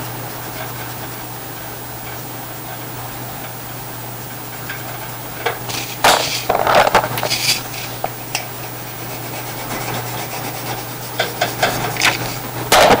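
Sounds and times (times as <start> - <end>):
paper sliding and rustling: 5.7 - 8.1.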